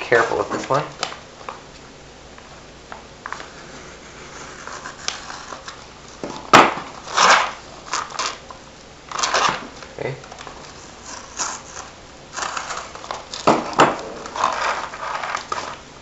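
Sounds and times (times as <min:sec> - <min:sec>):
paper envelope rustling: 0:09.1 - 0:15.9.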